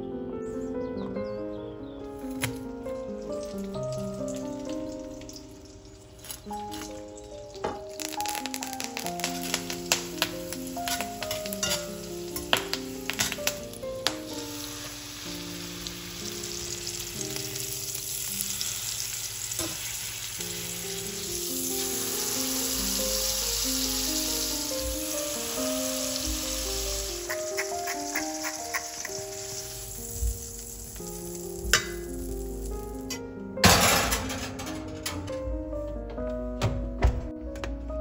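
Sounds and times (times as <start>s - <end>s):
background music: 0.0s - 38.0s
meat sizzling in a frying pan: 3.0s - 33.1s.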